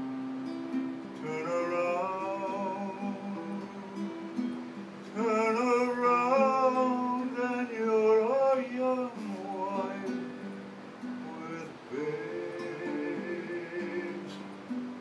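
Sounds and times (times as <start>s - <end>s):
acoustic guitar: 0.0s - 15.0s
man singing: 1.2s - 4.4s, 5.1s - 14.8s.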